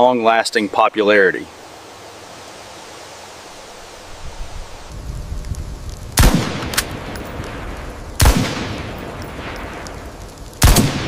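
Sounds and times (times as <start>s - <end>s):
rifle shots echoing: 6.2s - 11.0s.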